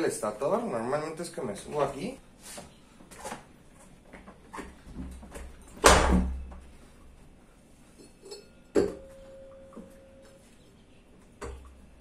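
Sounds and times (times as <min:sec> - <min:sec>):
brief ringing tone: 0:09.0 - 0:10.5.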